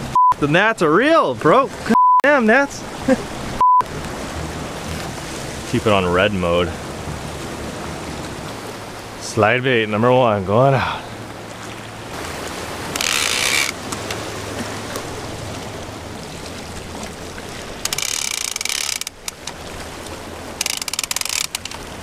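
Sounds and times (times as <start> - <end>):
fishing reel ratchet clicking: 13.0 - 13.8, 17.9 - 19.6, 20.6 - 21.8.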